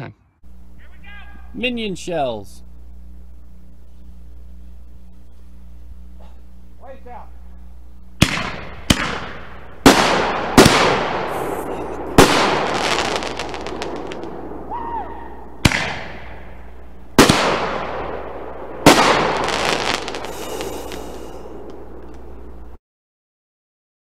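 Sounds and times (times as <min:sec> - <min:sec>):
firework shells booming: 0:08.2 - 0:22.5
firework crackle: 0:08.2 - 0:22.8.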